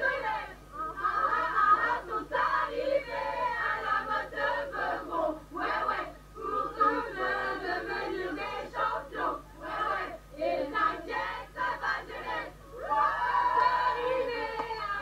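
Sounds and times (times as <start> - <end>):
faint low hum: 0.0 - 15.0
group of voices singing: 0.0 - 15.0.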